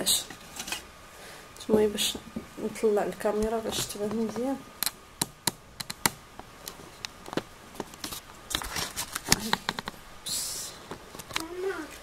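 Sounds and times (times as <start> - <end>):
camera handling rustling: 6.7 - 10.0.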